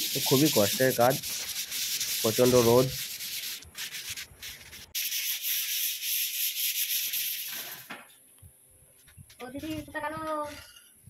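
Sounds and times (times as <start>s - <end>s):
sandpaper sanding a wall: 0.0s - 7.9s.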